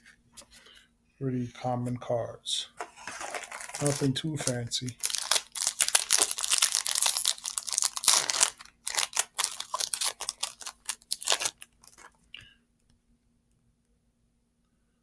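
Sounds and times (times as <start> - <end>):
foil wrapper crinkling and tearing: 3.1 - 12.2.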